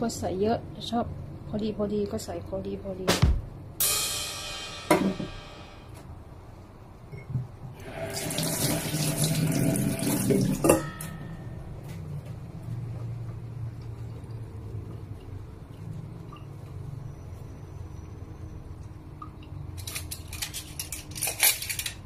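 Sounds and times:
kitchen tap running: 7.8s - 11.0s.

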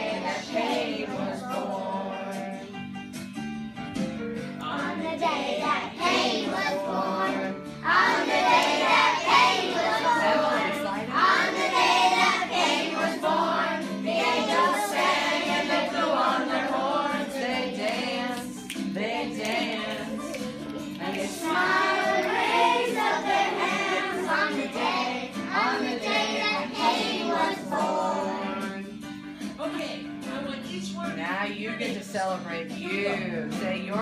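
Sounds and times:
children singing: 0.0s - 2.6s, 4.8s - 28.9s
recorded song with instruments: 0.0s - 34.0s.

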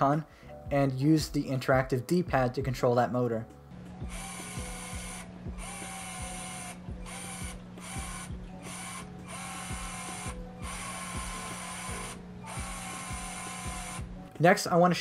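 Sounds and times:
small electric motor whirring: 3.8s - 14.3s.

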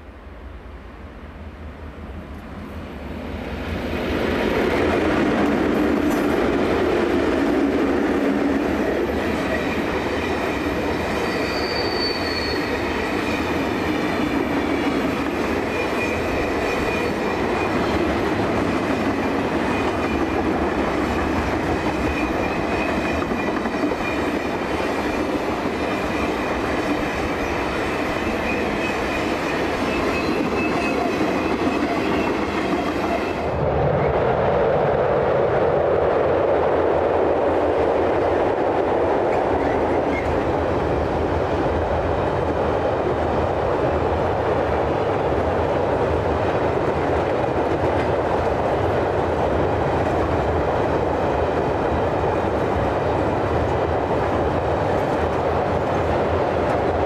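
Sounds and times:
diesel locomotive passing: 0.0s - 57.0s
train wheel squeal: 9.4s - 13.9s, 15.6s - 18.1s, 21.9s - 33.4s, 39.5s - 40.4s
rumble of wagon wheels on rails: 38.4s - 57.0s.

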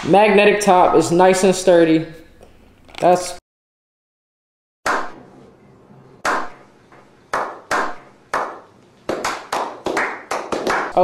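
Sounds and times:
people clapping slowly: 7.3s - 11.0s.

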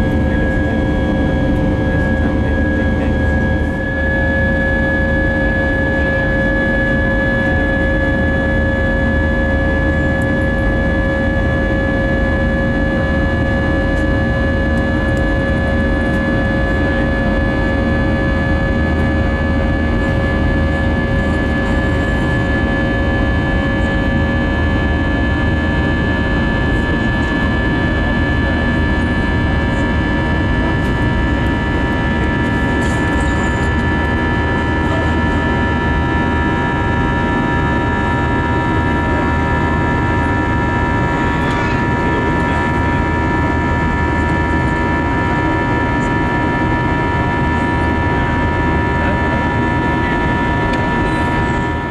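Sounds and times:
jet engine roar with whine: 0.0s - 51.9s.

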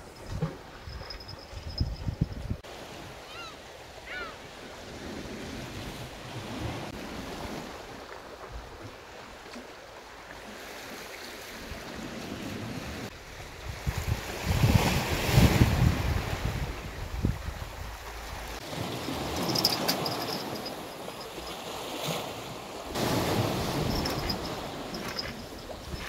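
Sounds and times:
wind: 0.0s - 26.0s
sea waves washing on shore: 2.7s - 26.0s
wind gust buffeting microphone: 13.2s - 21.0s.

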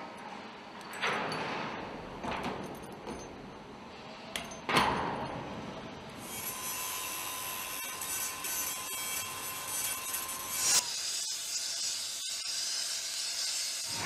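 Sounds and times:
angle grinder grinding steel pipe: 6.2s - 14.0s.

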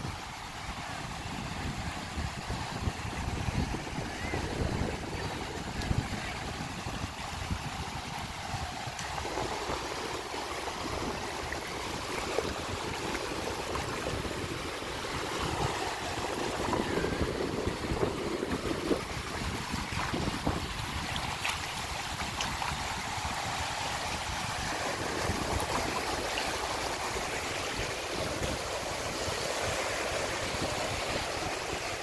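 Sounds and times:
small waves on sand: 0.0s - 32.0s
wind buffeting microphone: 0.0s - 32.0s.

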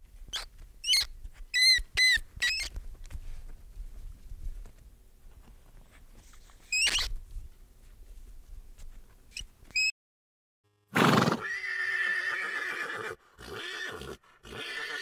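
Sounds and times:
short high squeaks: 0.3s - 2.8s, 6.6s - 7.2s, 9.3s - 9.9s
horse whinnying: 11.0s - 15.0s.

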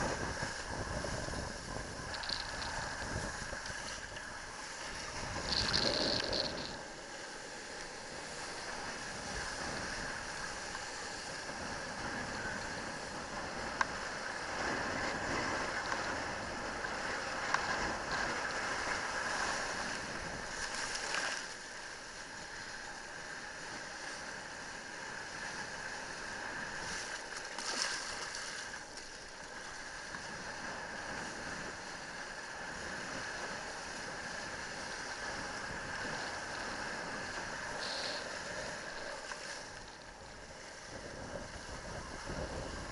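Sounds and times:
wind rushing on microphone: 0.0s - 6.8s, 8.5s - 20.6s, 30.2s - 42.9s
water spray surges: 30.7s - 42.9s.

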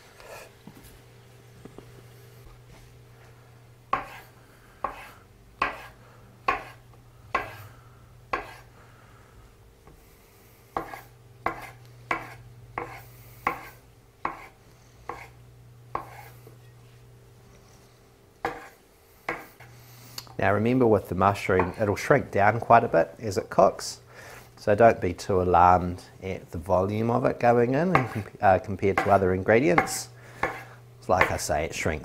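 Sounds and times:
knife chopping on wooden board: 3.9s - 4.2s, 4.8s - 7.6s, 8.3s - 8.7s, 10.8s - 14.5s, 15.1s - 15.3s, 15.9s - 16.3s, 18.4s - 19.6s, 27.9s - 28.3s, 29.0s - 29.2s, 29.8s - 31.4s.

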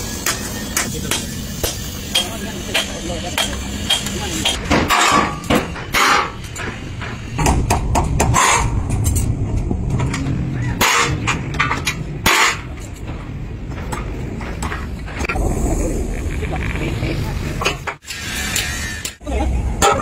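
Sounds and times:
hammer striking steel: 0.0s - 9.2s.

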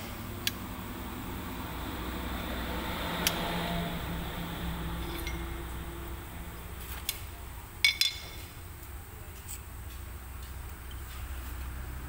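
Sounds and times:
low steady hum: 0.0s - 12.0s
metallic clinks of brake hardware: 7.8s - 8.5s.

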